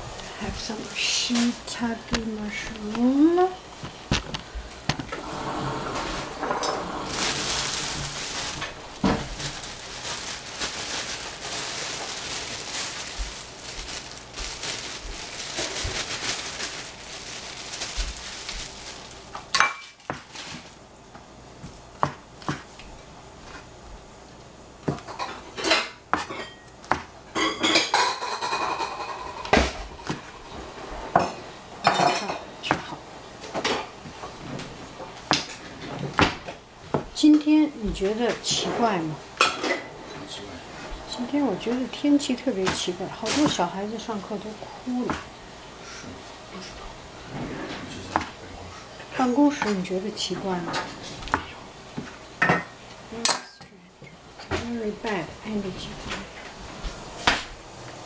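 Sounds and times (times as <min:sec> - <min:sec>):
steady hiss: 0:02.8 - 0:19.5
pots and dishes clinking: 0:19.4 - 0:20.1, 0:24.9 - 0:30.4, 0:31.1 - 0:32.5, 0:39.4 - 0:40.4, 0:52.4 - 0:54.6.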